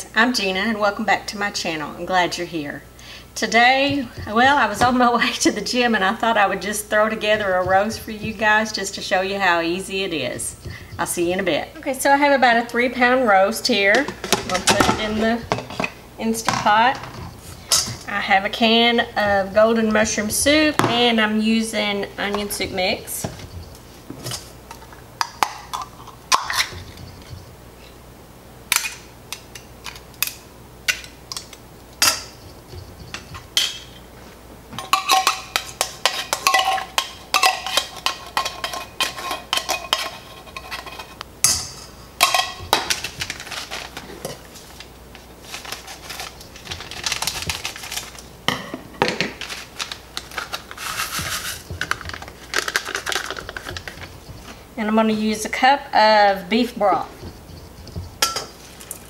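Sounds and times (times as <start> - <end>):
metal utensil scraping tin can: 42.3 - 44.7, 49.4 - 54.2
scratchy rustling: 42.9 - 48.2, 49.3 - 54.6.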